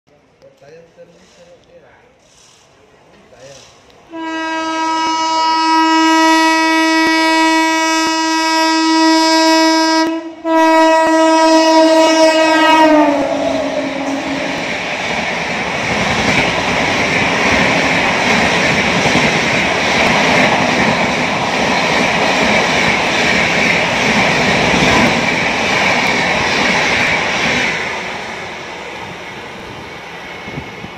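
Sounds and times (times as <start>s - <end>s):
train wheels rushing on rails: 2.2s - 30.9s
locomotive horn blasts: 4.1s - 14.6s.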